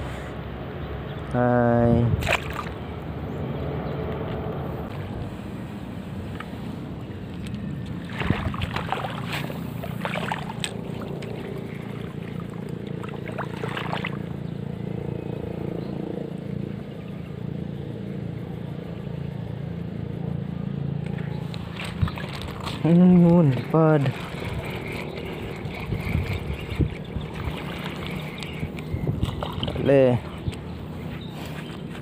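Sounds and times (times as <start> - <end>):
motor humming: 21.0 - 32.0.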